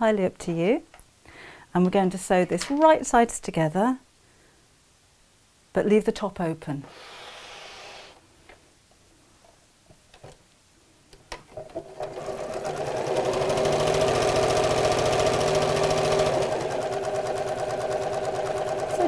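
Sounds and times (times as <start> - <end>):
sewing machine stitching: 11.6 - 19.0.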